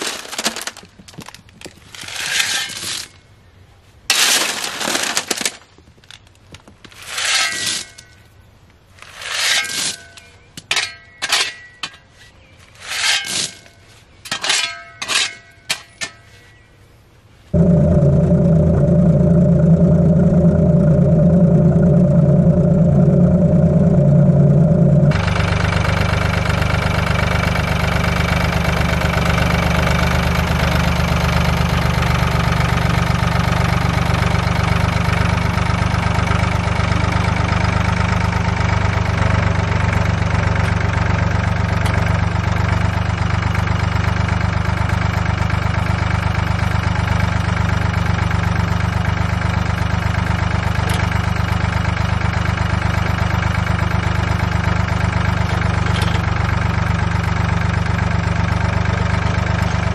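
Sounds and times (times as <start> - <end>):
tractor engine running: 17.6 - 59.9.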